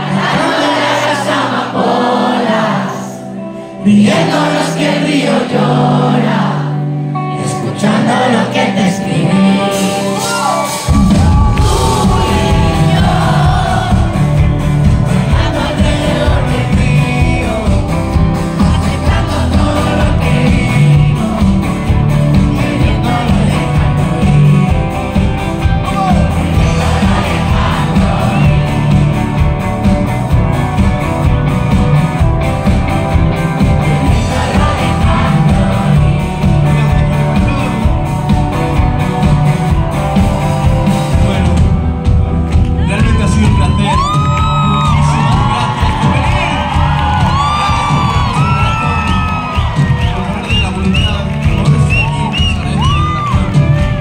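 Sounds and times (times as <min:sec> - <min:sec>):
person singing: 0:00.0 - 0:29.4, 0:33.7 - 0:38.0
live pop band playing: 0:00.0 - 0:54.0.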